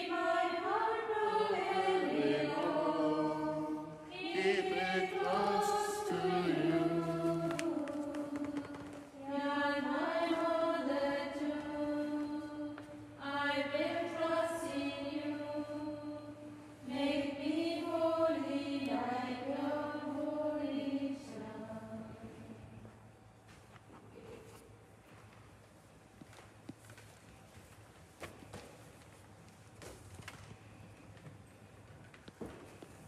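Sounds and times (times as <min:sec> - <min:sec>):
women singing a hymn: 0:00.0 - 0:22.9
faint low hum: 0:00.0 - 0:33.0.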